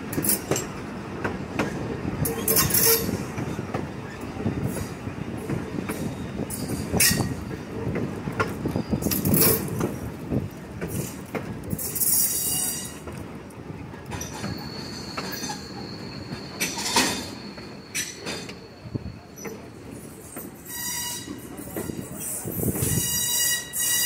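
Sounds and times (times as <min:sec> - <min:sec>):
train cars rumbling on track: 0:00.0 - 0:24.0
wheel squeal: 0:11.7 - 0:13.1, 0:14.1 - 0:24.0.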